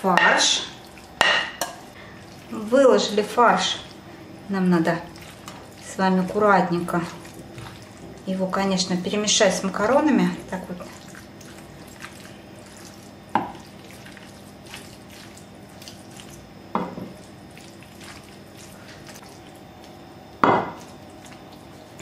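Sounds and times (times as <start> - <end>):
spoon scraping and squishing food: 5.0 - 8.2, 9.8 - 22.0.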